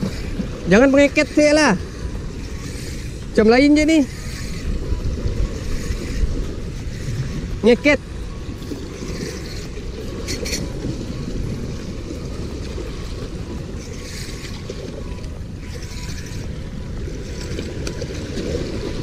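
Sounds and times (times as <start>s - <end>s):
waves washing on rocks: 0.0s - 19.0s
wind buffeting microphone: 0.0s - 19.0s.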